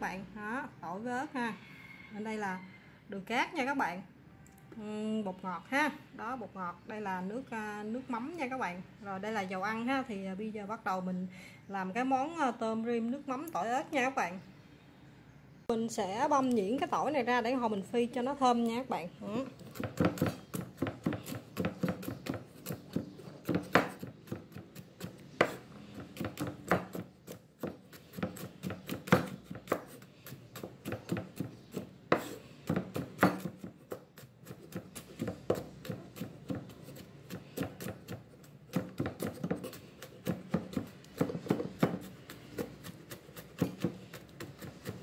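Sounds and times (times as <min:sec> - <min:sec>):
knife chopping on cutting board: 0:19.6 - 0:45.0.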